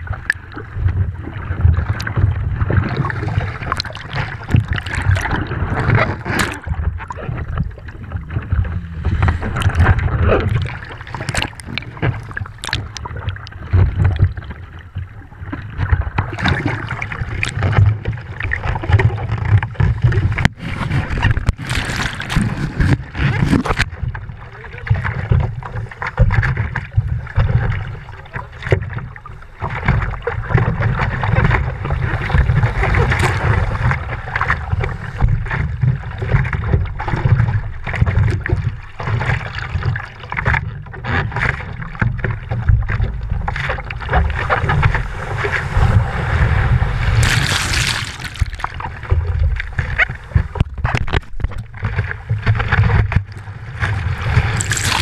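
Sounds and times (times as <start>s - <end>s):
constant low rumble: 0.0s - 55.0s
short splashes: 2.8s - 7.0s, 20.2s - 23.9s, 44.4s - 49.3s, 54.1s - 55.0s
water sloshing against camera housing: 3.6s - 7.6s, 8.4s - 14.4s, 18.6s - 24.1s, 47.1s - 51.9s.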